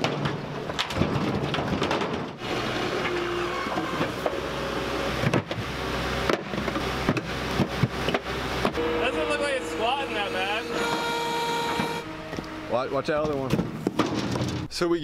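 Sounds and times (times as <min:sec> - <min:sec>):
concrete debris clattering: 0:00.0 - 0:02.4, 0:13.5 - 0:14.7
loader engine running: 0:02.4 - 0:14.6.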